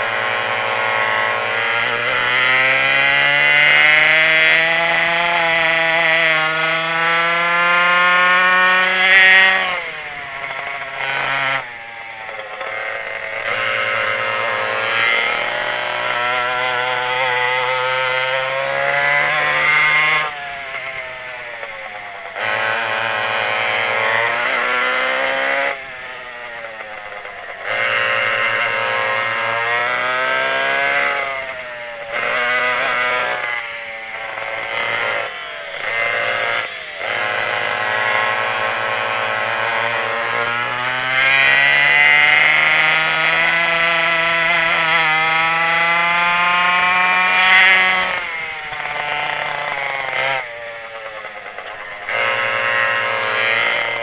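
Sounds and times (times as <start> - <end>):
kart engines revving: 0.0 - 54.0.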